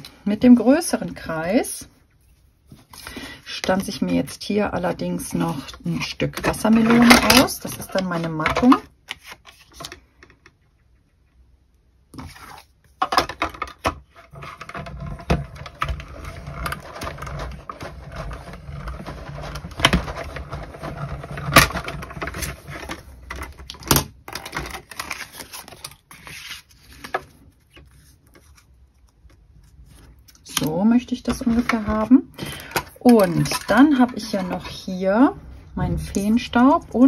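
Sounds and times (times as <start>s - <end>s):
card rustling and scraping: 5.4s - 10.3s, 12.1s - 35.0s.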